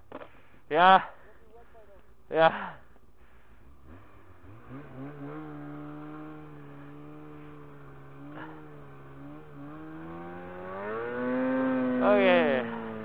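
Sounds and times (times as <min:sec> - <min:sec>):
snowmobile engine revving: 0:03.5 - 0:13.0.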